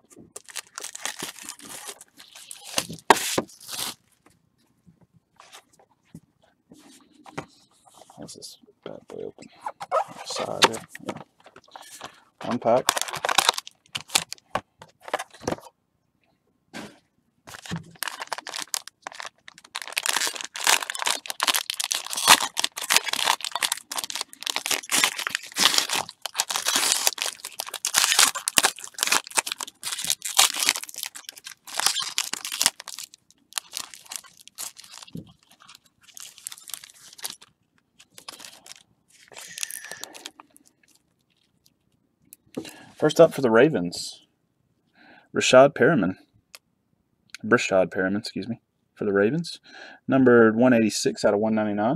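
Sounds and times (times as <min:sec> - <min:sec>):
foil wrapper tearing and crinkling: 0:00.4 - 0:04.0, 0:11.8 - 0:14.4, 0:17.5 - 0:41.5.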